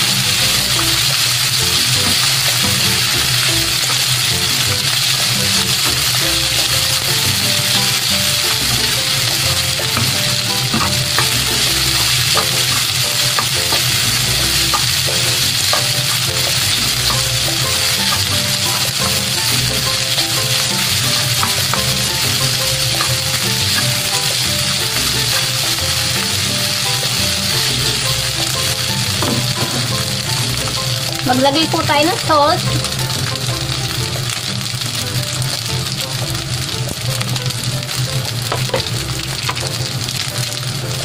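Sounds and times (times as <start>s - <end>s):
rice sizzling in oil: 0.0s - 41.0s
spatula scraping and tapping pan: 8.5s - 19.5s, 20.2s - 26.3s.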